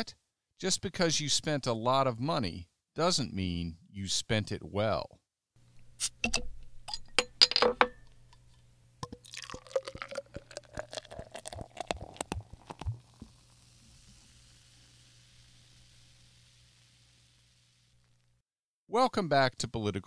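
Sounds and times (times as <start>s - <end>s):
glass clinking: 6.9s - 8.1s, 9.0s - 12.9s
liquid pouring into a glass: 9.0s - 17.6s.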